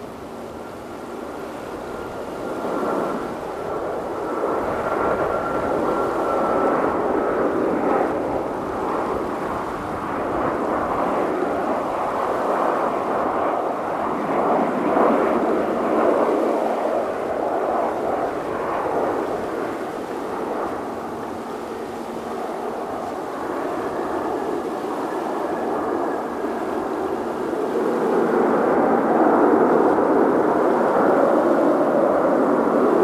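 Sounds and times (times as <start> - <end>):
jet engine roar: 0.0 - 33.0
thin steady whine: 0.0 - 33.0.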